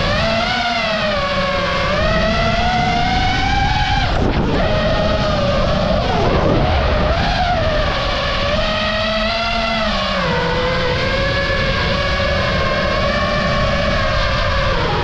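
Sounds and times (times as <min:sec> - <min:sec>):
drone motors whining: 0:00.0 - 0:15.0
wind noise: 0:00.0 - 0:15.0.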